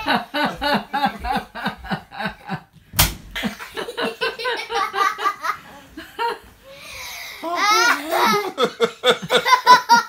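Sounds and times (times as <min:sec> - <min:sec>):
people laughing: 0:00.0 - 0:02.7, 0:03.4 - 0:06.4, 0:08.0 - 0:10.0.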